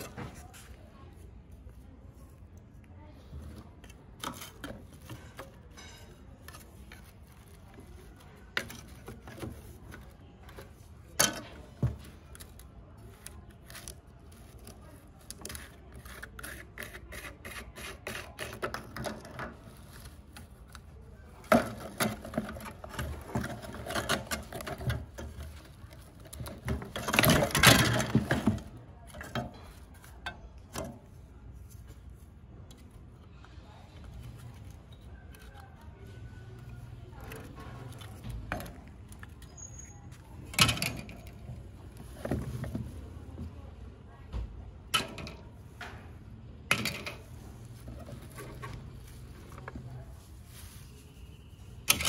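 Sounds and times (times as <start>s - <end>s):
plastic fan blade scraping metal: 3.7s - 31.1s.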